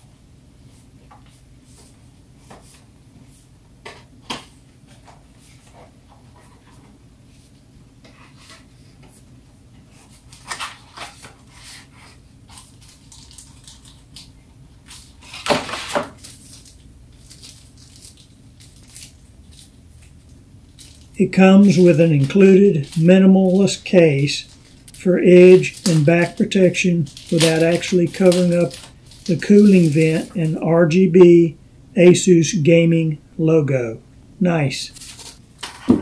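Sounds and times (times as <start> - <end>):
packaging rustling: 12.5 - 14.3, 14.9 - 30.6, 34.6 - 35.8
steady low hum: 16.8 - 35.6.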